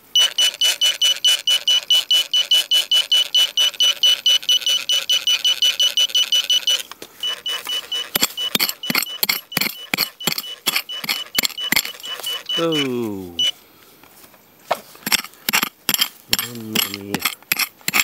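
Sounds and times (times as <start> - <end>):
metal detector beeping: 0.1 - 13.6, 15.0 - 18.0
sharp clicks and knocks: 8.1 - 12.4, 15.0 - 18.0.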